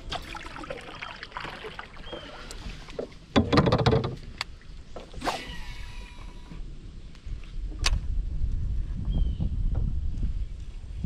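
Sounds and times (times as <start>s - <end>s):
water sloshing around kayak hull: 0.0s - 5.4s
knocks and clicks from boat: 2.1s - 5.2s.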